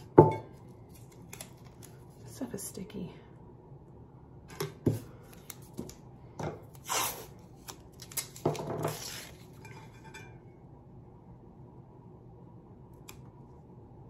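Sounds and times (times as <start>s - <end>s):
tape rustling and pulling: 6.7s - 9.6s.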